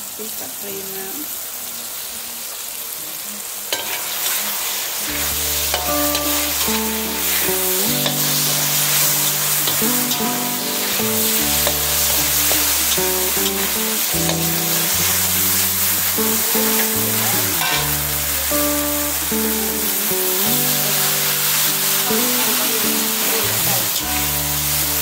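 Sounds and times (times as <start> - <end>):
food sizzling in oil: 0.0 - 25.0
metal spatula scraping pan: 5.1 - 18.2
background music with bass: 5.1 - 25.0.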